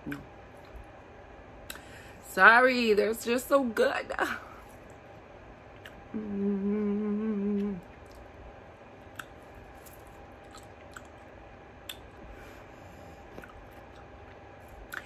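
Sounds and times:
quiet chewing: 5.7s - 6.4s, 7.4s - 8.4s, 9.0s - 15.0s
woman humming mmm: 6.1s - 7.9s
wet mouth clicks: 7.4s - 8.2s, 9.1s - 9.4s, 10.5s - 11.2s.

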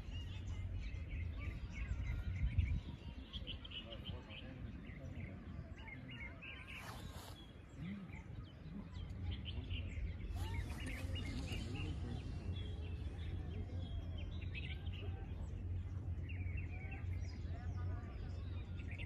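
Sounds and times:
small birds chirping: 0.0s - 19.0s
low outdoor rumble: 7.4s - 19.0s.

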